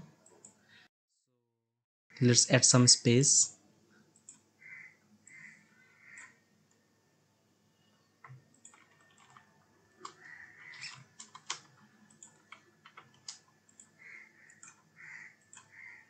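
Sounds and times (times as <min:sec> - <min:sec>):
computer mouse clicks: 0:04.1 - 0:04.5, 0:06.1 - 0:06.8, 0:08.2 - 0:15.9.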